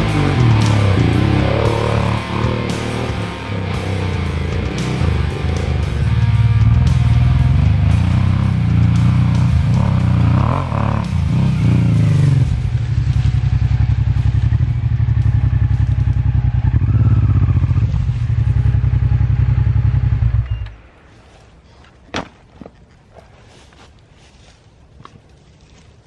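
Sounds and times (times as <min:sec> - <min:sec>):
motorcycle engine revving: 0:00.0 - 0:20.9.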